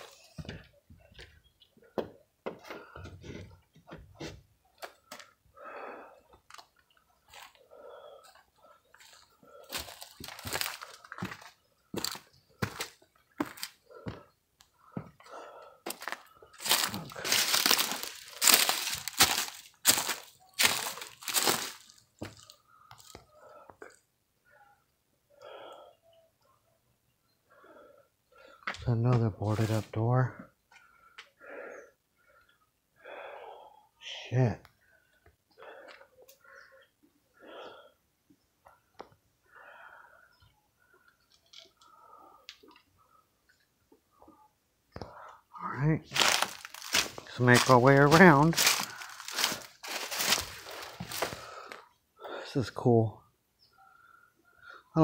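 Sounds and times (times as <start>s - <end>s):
footsteps on dry grass: 9.0s - 14.2s, 15.9s - 23.1s, 46.1s - 51.8s.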